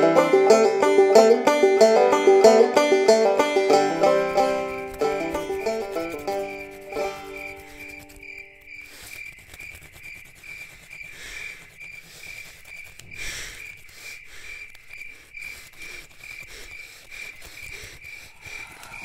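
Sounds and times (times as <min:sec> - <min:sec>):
crickets chirping: 0:00.2 - 0:19.0
faint rustling and clicks: 0:04.9 - 0:16.5.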